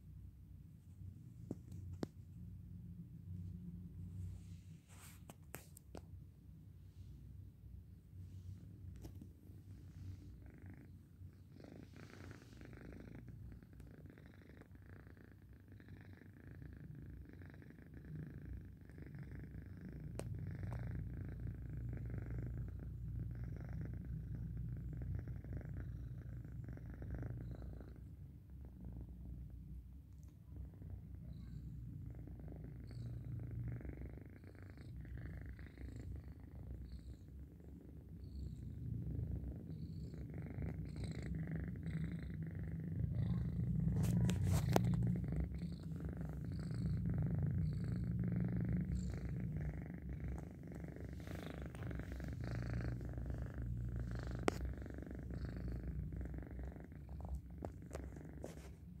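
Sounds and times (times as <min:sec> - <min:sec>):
cat purring: 0:00.0 - 0:59.0.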